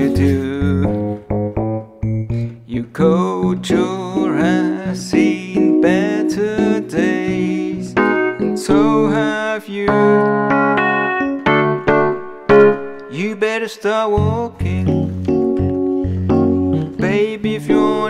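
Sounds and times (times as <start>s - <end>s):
digital piano playing: 0.0s - 18.0s.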